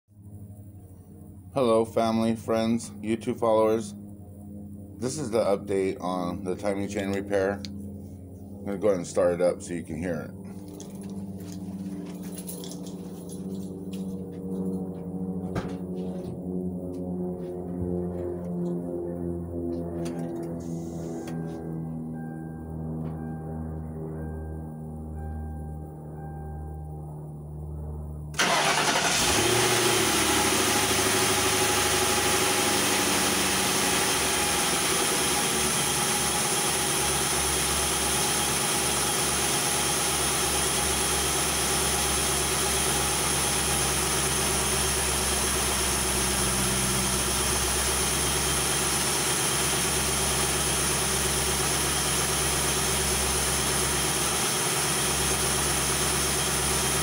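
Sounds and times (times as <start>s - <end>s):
car engine starting and idling: 28.3s - 57.0s.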